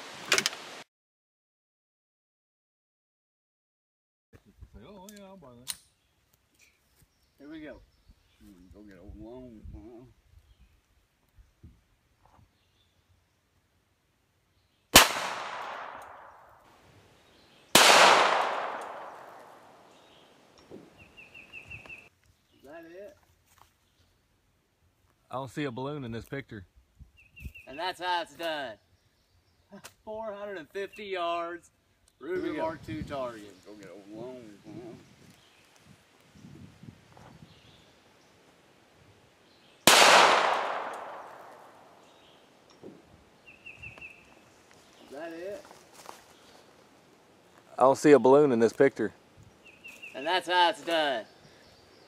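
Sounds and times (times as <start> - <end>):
pistol shot echoing: 15.0 - 16.6, 17.7 - 20.0, 39.8 - 42.1.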